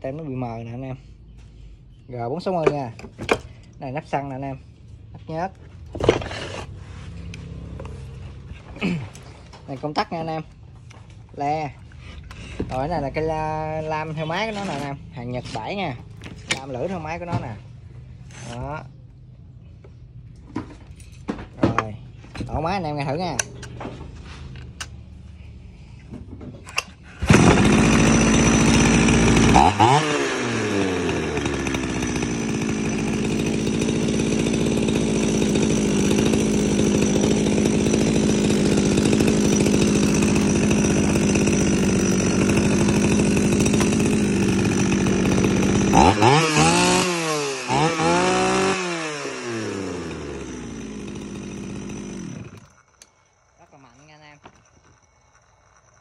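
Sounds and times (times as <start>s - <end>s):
chainsaw engine starting and idling: 2.4s - 19.2s, 19.9s - 56.0s
chainsaw revving: 12.0s - 17.4s, 26.9s - 56.0s.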